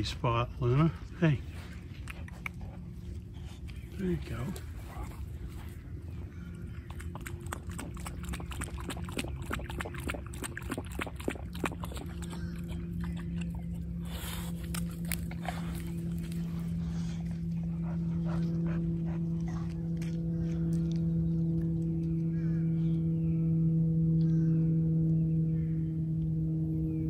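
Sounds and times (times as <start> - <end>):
low hum: 0.0 - 27.0
dog lapping water: 1.9 - 21.8.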